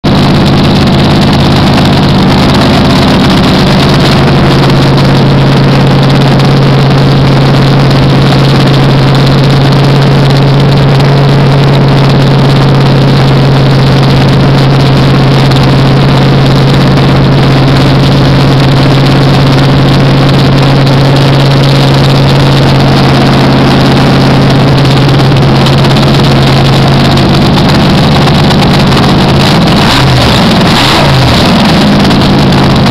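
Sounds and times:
engine running at raised speed: 0.0s - 32.9s.

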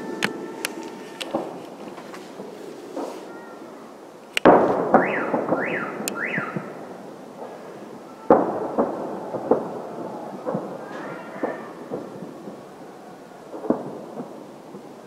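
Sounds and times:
car alarm wailing: 0.0s - 1.2s, 4.9s - 6.9s
fireworks pops: 0.0s - 3.6s, 4.2s - 6.8s, 8.3s - 9.7s, 10.3s - 12.6s, 13.5s - 14.9s
fireworks bangs: 0.0s - 15.0s.

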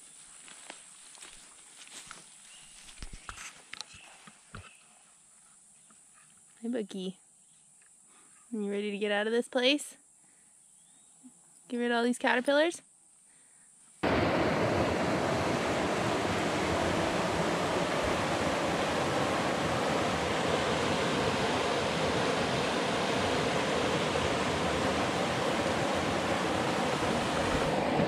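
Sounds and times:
river rapids rushing: 14.0s - 28.0s.

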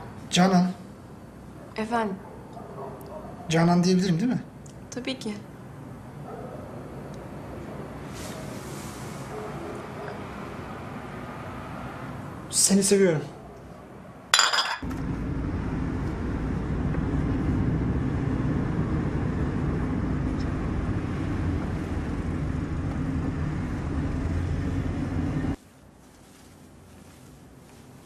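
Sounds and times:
car engine and road hum: 14.8s - 25.6s.

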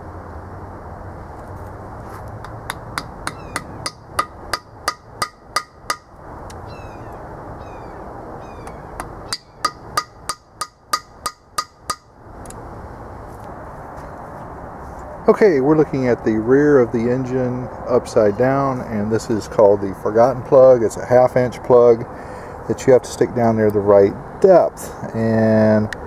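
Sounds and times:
metallic taps with ringing tone: 9.0s - 12.1s.

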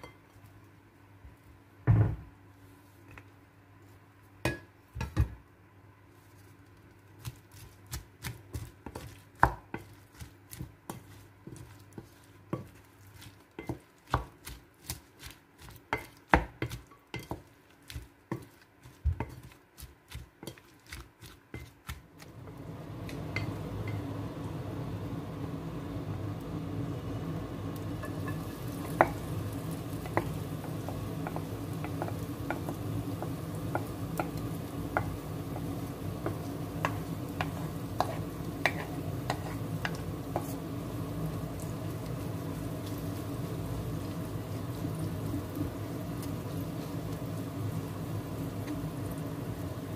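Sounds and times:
low rumble of gas stove: 0.0s - 49.9s
frying hiss: 6.1s - 49.9s
spatula taps: 7.2s - 24.1s, 28.0s - 40.8s
spatula clacking on a plate: 15.9s - 18.5s.

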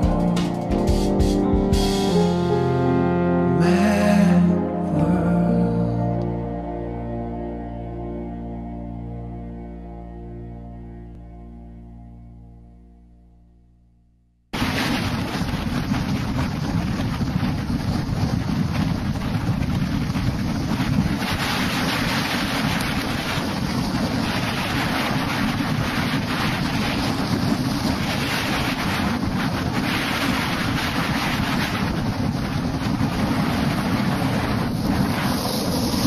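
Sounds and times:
wind rushing over microphone: 14.5s - 36.0s
skateboard wheels rolling on asphalt: 14.6s - 36.0s.

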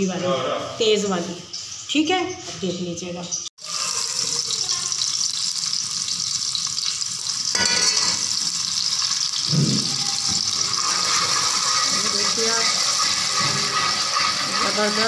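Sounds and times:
onions sizzling in hot oil: 0.8s - 15.0s
metal spoon stirring in pot: 5.3s - 15.0s.

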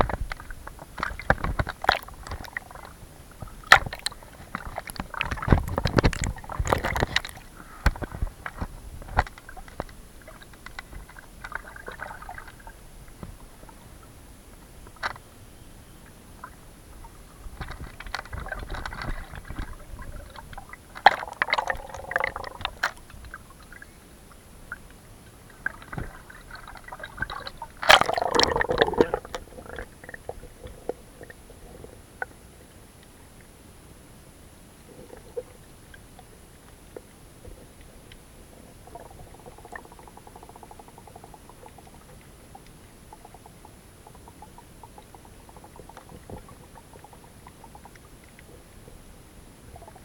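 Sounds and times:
bubbling and splashing: 0.0s - 14.1s, 16.4s - 23.9s, 25.4s - 32.4s, 38.5s - 48.4s
sea water sloshing and gurgling: 0.0s - 15.4s, 16.0s - 33.5s, 34.8s - 50.0s.

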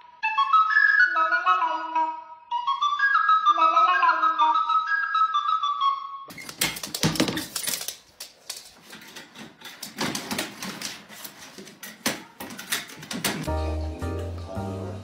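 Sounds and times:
wire door rattling and clicking: 6.3s - 13.5s.

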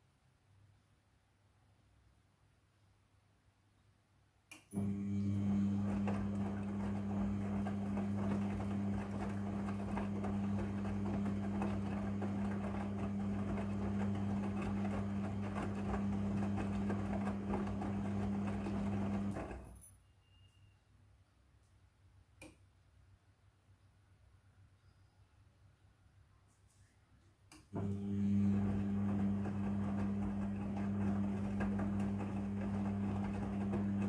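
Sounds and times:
washing machine motor hum: 4.7s - 19.8s, 27.7s - 34.0s.

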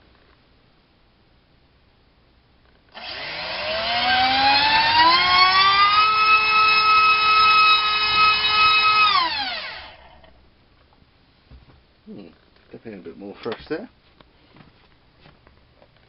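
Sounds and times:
electric motor and propeller whine: 3.0s - 10.3s.

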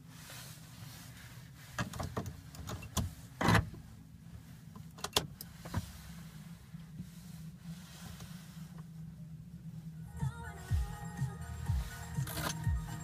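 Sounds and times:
low hum: 5.5s - 13.0s
car key clicks in ignition: 12.2s - 12.7s.

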